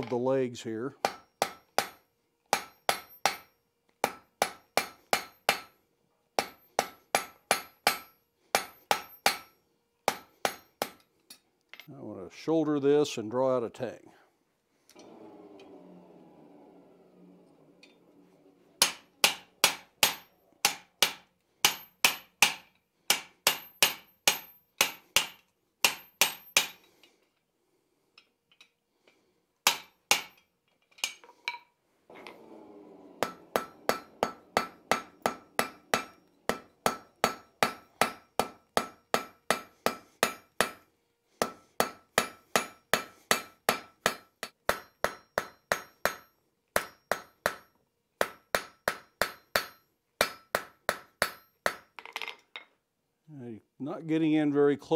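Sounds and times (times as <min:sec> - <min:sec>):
hammer striking hot steel on anvil: 0:01.0 - 0:05.8, 0:06.4 - 0:11.0, 0:18.8 - 0:26.9, 0:29.7 - 0:30.5, 0:33.2 - 0:52.0.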